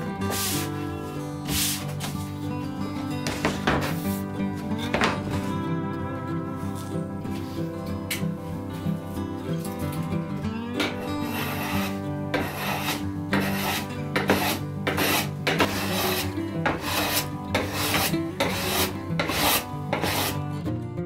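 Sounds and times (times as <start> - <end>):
background music: 0.0 - 21.0
hand plane shaving wood: 0.2 - 0.8, 1.5 - 2.2, 10.8 - 20.4.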